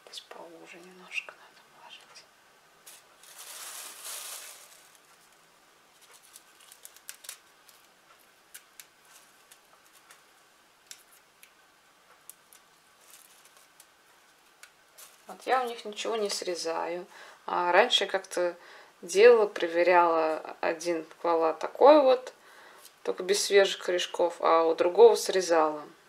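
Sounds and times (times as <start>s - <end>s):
plastic bag rustle: 2.8s - 8.0s, 8.6s - 10.2s, 12.5s - 16.4s.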